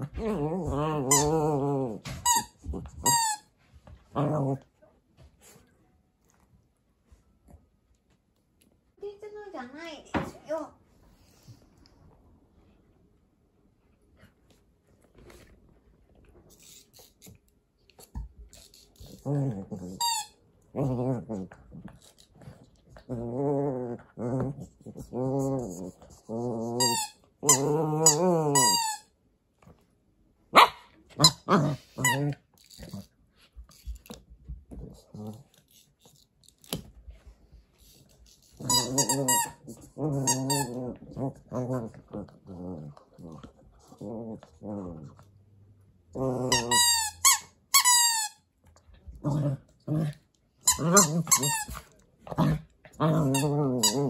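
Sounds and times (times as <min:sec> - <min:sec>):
puppy growling: 0:00.0 - 0:03.1, 0:20.7 - 0:28.9, 0:38.5 - 0:45.5, 0:46.1 - 0:47.0, 0:49.1 - 0:54.0
squeaky chew toy squeaking: 0:38.5 - 0:39.6, 0:46.5 - 0:48.4, 0:50.6 - 0:51.8.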